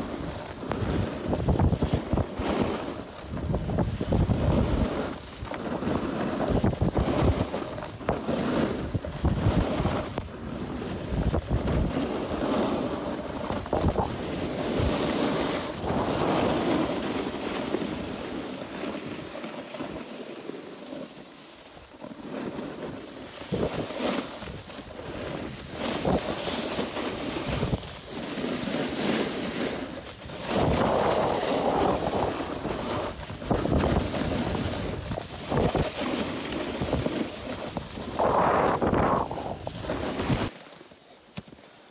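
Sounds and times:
snowboard edges scraping snow: 0:00.0 - 0:41.9
wind buffeting microphone: 0:03.3 - 0:05.0, 0:13.2 - 0:15.1, 0:30.2 - 0:40.5.

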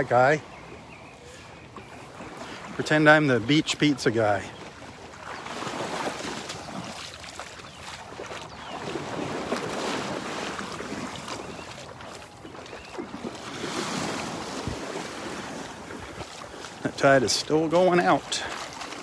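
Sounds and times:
wind buffeting microphone: 0:04.8 - 0:16.9
surf washing onto beach: 0:05.3 - 0:19.0.

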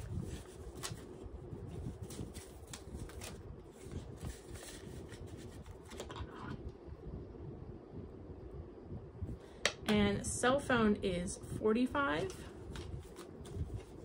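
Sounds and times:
paper rustling and crinkling: 0:00.0 - 0:06.4, 0:12.2 - 0:14.0.

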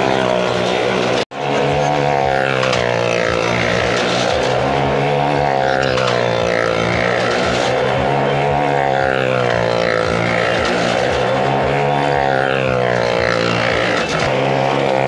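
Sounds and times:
motorcycle engine at steady revs: 0:00.0 - 0:15.0.

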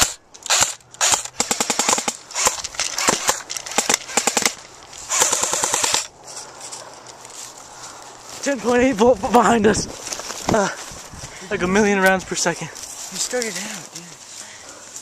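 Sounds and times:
airsoft rifle full-auto bursts: 0:00.0 - 0:06.1.

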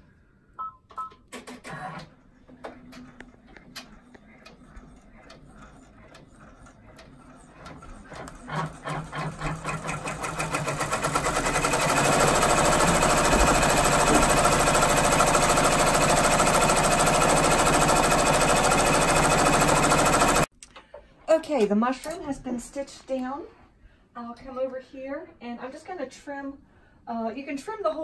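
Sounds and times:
embroidery machine stitching: 0:01.4 - 0:20.5.

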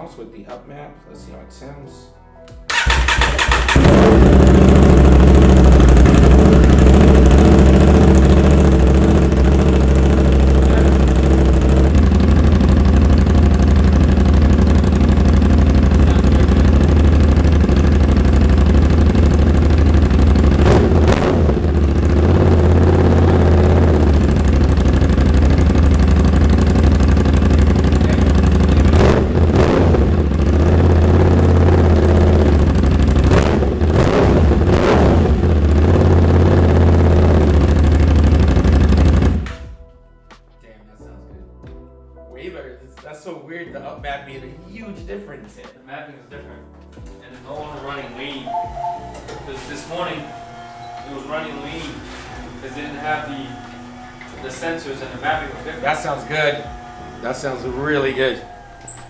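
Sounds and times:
motorcycle engine idling: 0:02.7 - 0:39.6
throttle blips: 0:48.4 - 0:49.5.

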